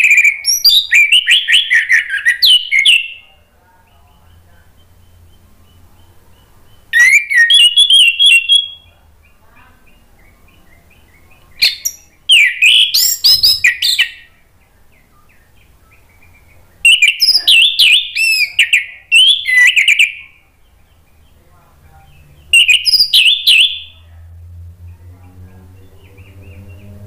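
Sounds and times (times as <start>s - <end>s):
thrush singing whistled phrases: 0.0s - 3.2s, 4.8s - 8.9s, 10.0s - 14.3s, 16.8s - 20.4s, 22.5s - 24.0s.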